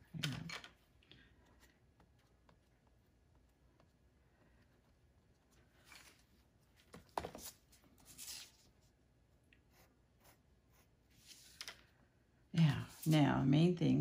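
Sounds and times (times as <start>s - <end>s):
pencil scratching on paper: 9.7s - 11.6s.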